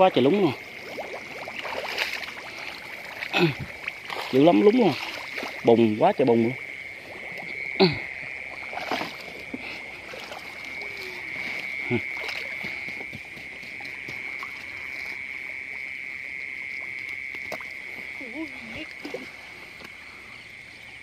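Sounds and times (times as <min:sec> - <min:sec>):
frog croaks sliding downward: 0:00.0 - 0:13.0
frogs chorus: 0:00.0 - 0:21.0.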